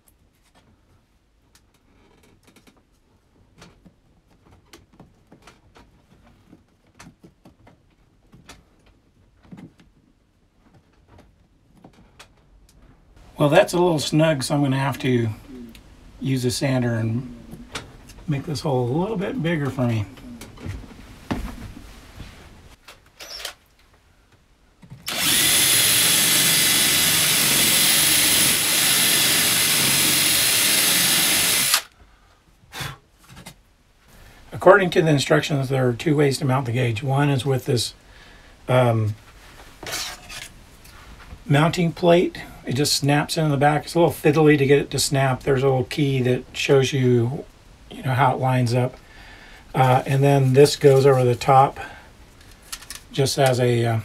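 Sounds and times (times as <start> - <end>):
drill sanding plywood: 25.1 - 31.9.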